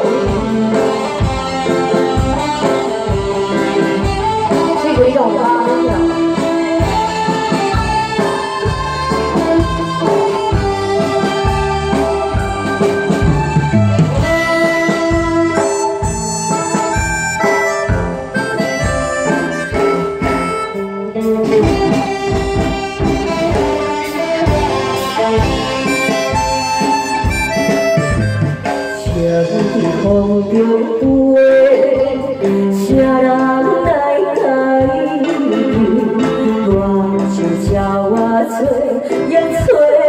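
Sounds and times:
steady drum beat: 0.0 - 31.3
held lead melody: 0.0 - 40.0.

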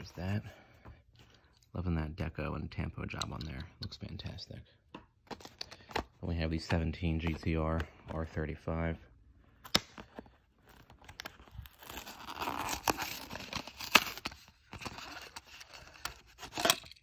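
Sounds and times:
cardboard ripping: 11.2 - 15.3.

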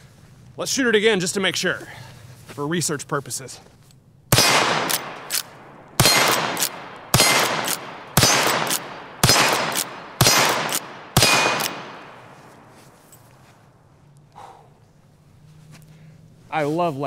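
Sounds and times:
rifle shots: 4.3 - 12.7
rifle lever clacking: 4.4 - 11.9.

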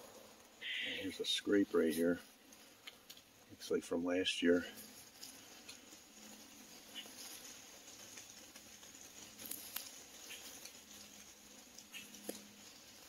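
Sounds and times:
footsteps through wet leaves: 0.0 - 13.0.

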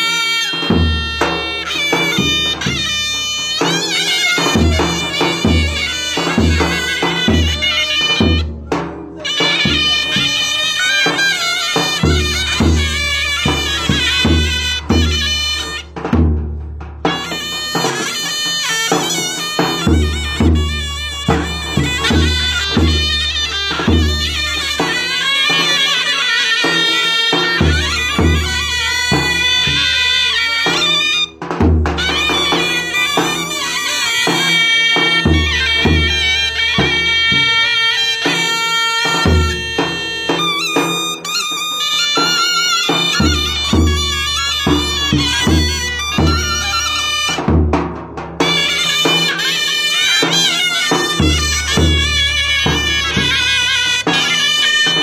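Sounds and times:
shrill reed pipes folk melody: 0.0 - 16.0, 17.1 - 31.4, 32.0 - 47.8, 48.4 - 55.0.

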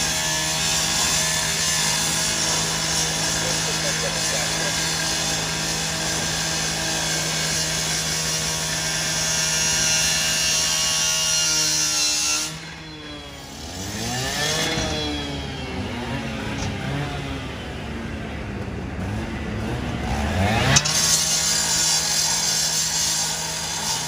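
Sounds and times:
power saw cutting metal: 0.0 - 18.2, 19.0 - 24.0
engine revving: 0.0 - 24.0.

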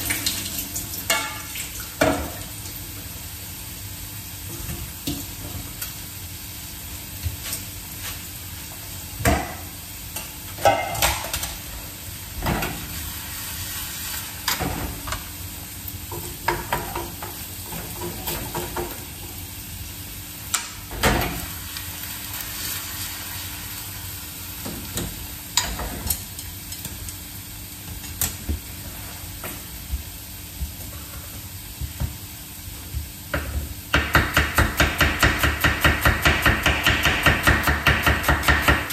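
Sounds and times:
food sizzling in a frying pan: 0.0 - 38.9
utensils clinking against pan: 10.2 - 11.6.

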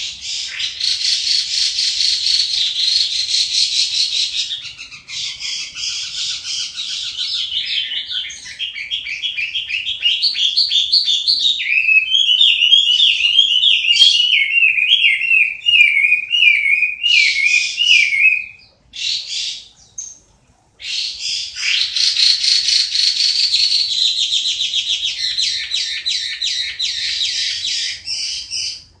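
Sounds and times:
bird rasping trill: 0.0 - 20.2, 20.8 - 28.9
bird whistling notes: 0.0 - 20.2.

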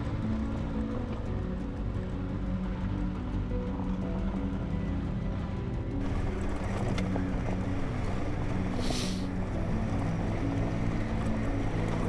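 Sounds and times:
tyres on gravel road: 6.0 - 12.0
short rush of hiss: 8.8 - 9.3.

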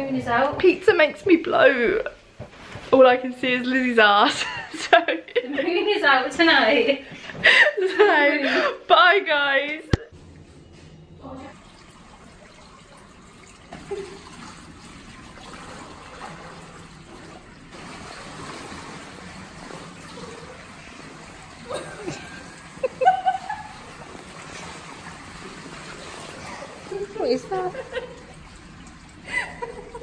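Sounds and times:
pool water lapping: 10.1 - 30.0.

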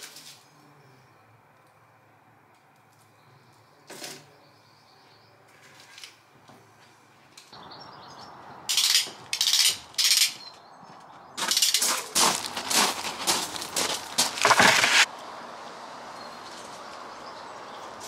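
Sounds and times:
footsteps crunching on gravel: 10.8 - 15.1.

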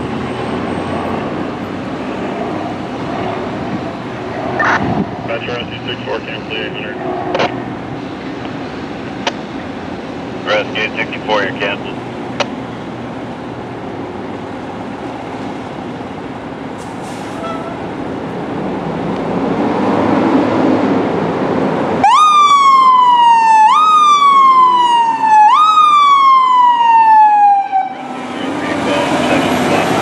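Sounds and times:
diesel engine running: 0.0 - 19.6, 27.9 - 30.0
electronic siren sweeping: 22.0 - 29.6.

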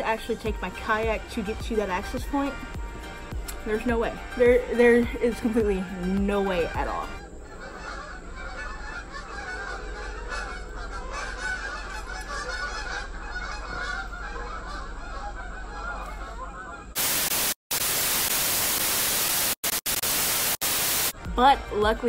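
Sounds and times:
flock of birds chattering: 0.0 - 17.2
tv static: 16.9 - 21.2.

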